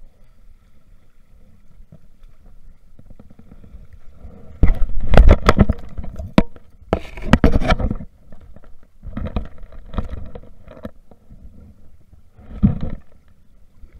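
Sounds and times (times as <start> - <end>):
fishing gear clunking and rattling: 4.6 - 11.3.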